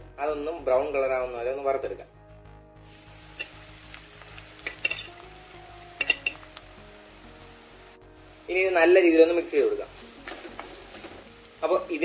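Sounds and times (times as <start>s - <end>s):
coconut sizzling in hot oil: 2.8s - 12.0s
stirring scrapes against pan: 9.9s - 11.4s.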